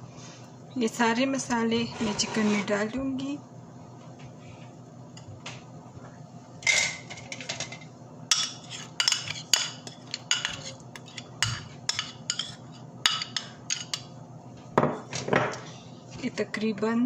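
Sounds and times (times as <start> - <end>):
metal spoon scraping a plate: 1.8 - 2.8, 8.3 - 14.1.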